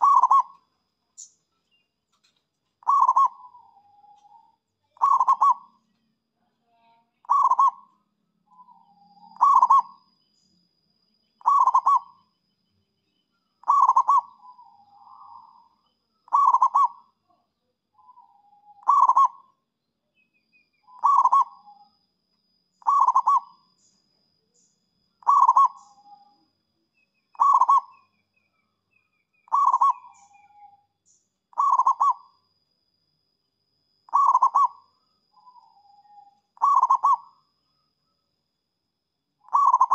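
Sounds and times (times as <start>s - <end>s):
dove cooing: 0.0s - 0.6s, 2.8s - 5.8s, 7.2s - 7.9s, 8.6s - 10.0s, 11.4s - 12.2s, 13.6s - 15.7s, 16.3s - 17.1s, 18.0s - 19.5s, 20.9s - 21.8s, 22.8s - 23.6s, 25.2s - 26.3s, 27.3s - 28.0s, 29.5s - 30.7s, 31.5s - 32.3s, 34.1s - 34.8s, 35.4s - 37.3s, 39.5s - 39.9s.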